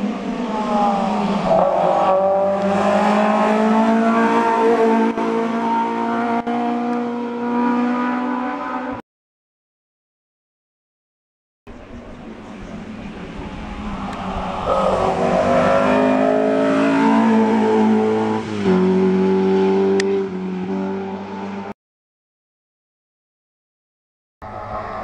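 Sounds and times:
race car engine at high revs: 0:00.0 - 0:09.0, 0:12.0 - 0:21.8, 0:24.4 - 0:25.0.

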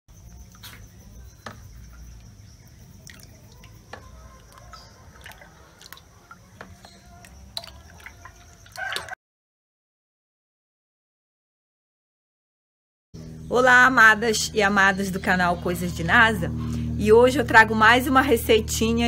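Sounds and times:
drips and splats: 0:01.4 - 0:09.2
liquid soap pouring into a basin: 0:03.0 - 0:09.1
chicken calling: 0:03.2 - 0:09.2.

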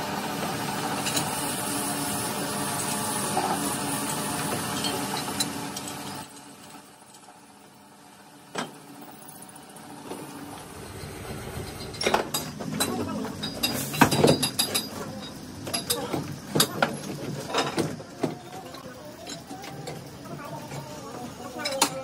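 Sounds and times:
low hum: 0:09.6 - 0:14.0.

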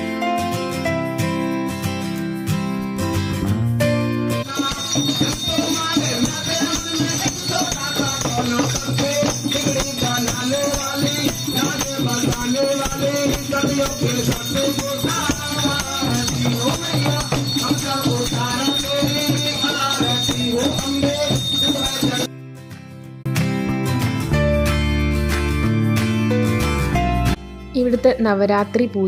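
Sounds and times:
person singing devotional song: 0:04.4 - 0:22.3
shaken rattling percussion: 0:04.4 - 0:22.3.

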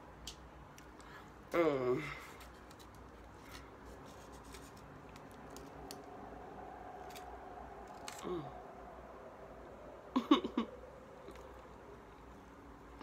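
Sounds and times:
low hum falling in pitch: 0:05.8 - 0:13.0.

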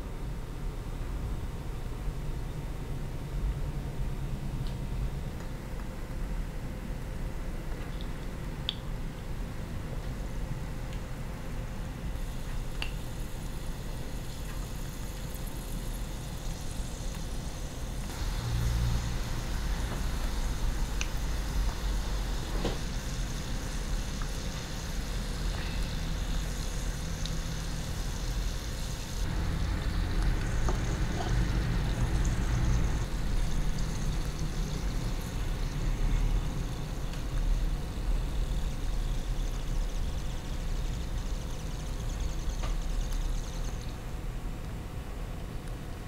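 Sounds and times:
low steady rumble: 0:00.0 - 0:46.0
oil sizzling and bubbling: 0:10.0 - 0:44.3.

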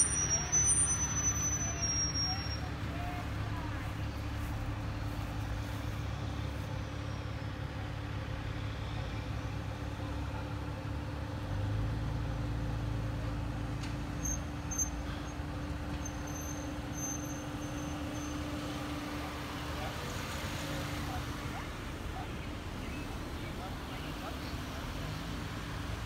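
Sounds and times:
horse trailer rolling past: 0:00.0 - 0:06.4
cars driving by slowly: 0:00.0 - 0:26.0.

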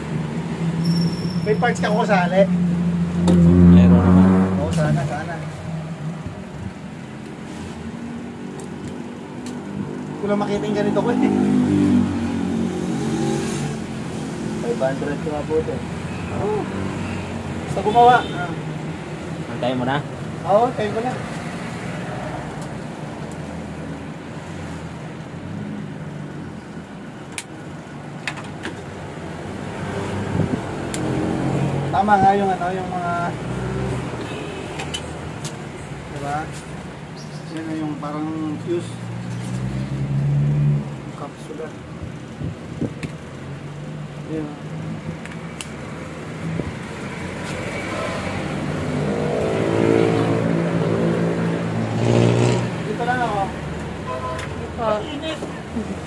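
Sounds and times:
vehicle engine passing: 0:01.8 - 0:06.3, 0:07.5 - 0:15.8, 0:38.5 - 0:41.3, 0:46.2 - 0:53.8.

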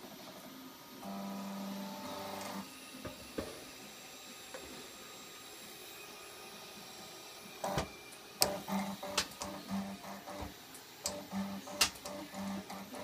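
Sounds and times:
stepper motor hum: 0:07.4 - 0:13.0.

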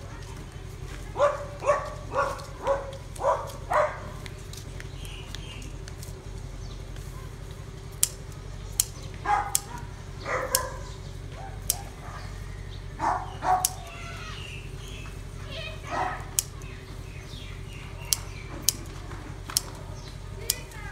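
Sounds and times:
steady low hum: 0:00.0 - 0:20.9
dog barking: 0:01.1 - 0:04.2, 0:09.0 - 0:12.4, 0:13.0 - 0:13.9, 0:15.5 - 0:16.4
sharp clicks: 0:07.9 - 0:12.1, 0:13.0 - 0:15.3, 0:16.0 - 0:20.9.

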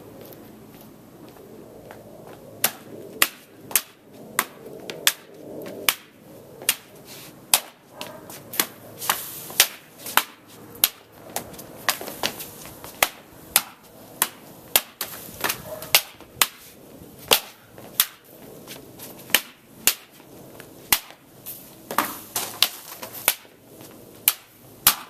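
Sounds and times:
wooden sword sharp slaps: 0:02.6 - 0:05.3, 0:05.9 - 0:06.1, 0:06.7 - 0:06.9, 0:07.5 - 0:07.8, 0:08.6 - 0:11.0, 0:13.0 - 0:16.6, 0:17.3 - 0:18.2, 0:19.3 - 0:20.1, 0:20.9 - 0:21.2, 0:21.9 - 0:23.5, 0:24.2 - 0:25.0.

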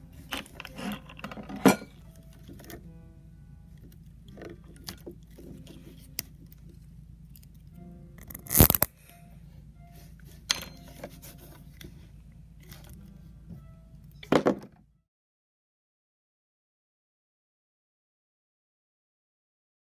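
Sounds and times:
faint musical tones: 0:00.0 - 0:15.1
cable tie snapping: 0:08.2 - 0:08.9
hand tool clicks and scrapes: 0:08.2 - 0:08.9.

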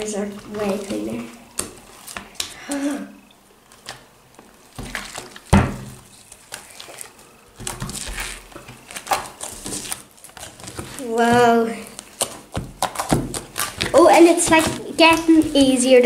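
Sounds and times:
slime squelching: 0:00.0 - 0:02.9, 0:03.7 - 0:16.0.

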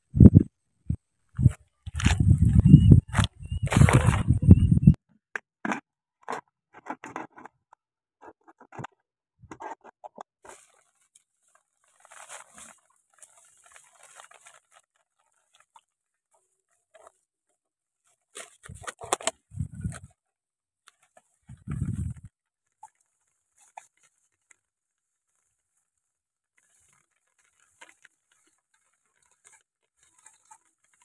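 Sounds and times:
plastic bottle crinkling: 0:01.4 - 0:04.3, 0:10.4 - 0:15.9, 0:18.4 - 0:20.1, 0:26.5 - 0:31.0
dry grass rustling: 0:01.4 - 0:04.4, 0:10.4 - 0:17.2, 0:20.9 - 0:25.9, 0:26.5 - 0:31.0.

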